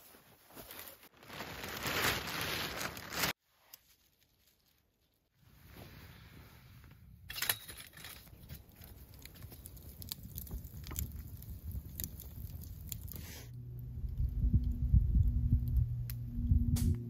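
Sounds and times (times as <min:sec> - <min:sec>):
campfire crackling and popping: 0:08.2 - 0:16.2.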